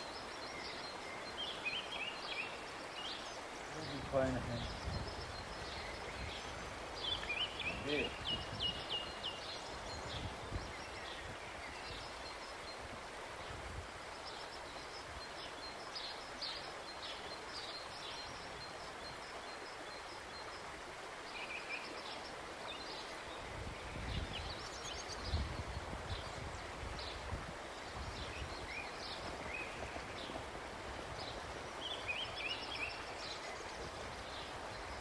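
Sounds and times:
small birds chirping: 0.0s - 12.9s, 13.5s - 35.0s
steady background hiss: 0.0s - 35.0s.

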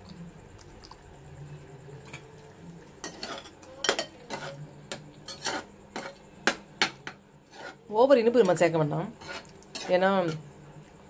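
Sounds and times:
metal ladle scraping a pan: 3.0s - 6.2s, 7.4s - 10.4s.

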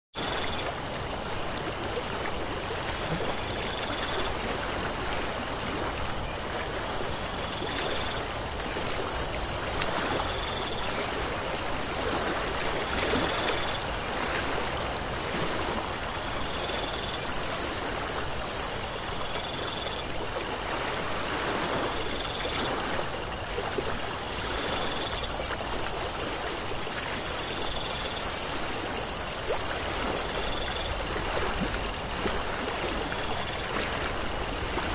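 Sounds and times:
flowing water rushing: 0.2s - 34.9s.

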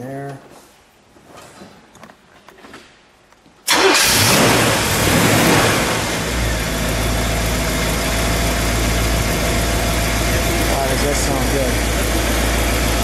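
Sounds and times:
car engine starting and idling: 3.6s - 13.0s.

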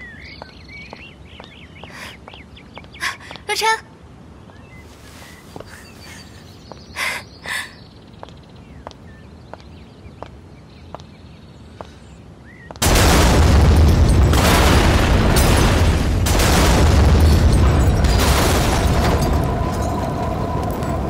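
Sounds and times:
faint bird chirps: 4.4s - 12.8s
car explosion blast: 12.8s - 21.0s.

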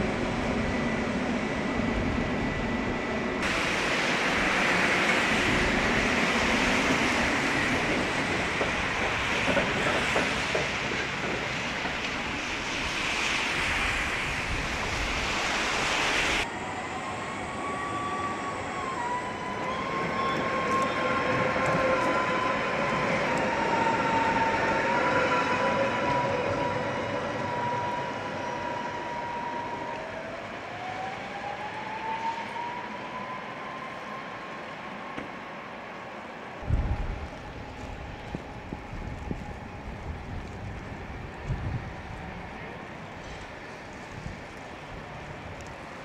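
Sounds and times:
tram electric motor whine: 0.0s - 46.0s
rain on wet street: 3.4s - 16.5s, 36.6s - 46.0s.

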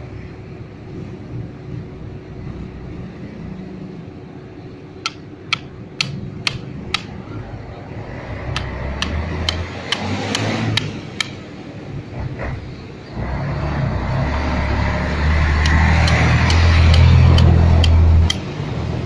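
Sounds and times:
hammer striking steel chisel: 5.0s - 7.1s, 8.6s - 11.4s, 15.6s - 18.5s.

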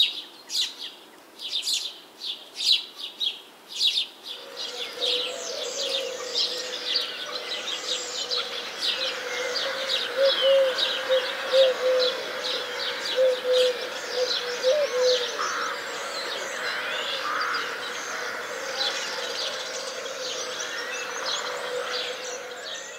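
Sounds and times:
birds chirping and trilling: 0.0s - 22.9s.

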